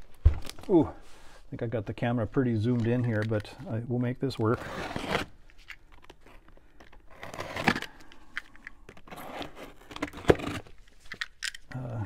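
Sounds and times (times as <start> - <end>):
cardboard rustling and scraping: 8.9 - 11.1.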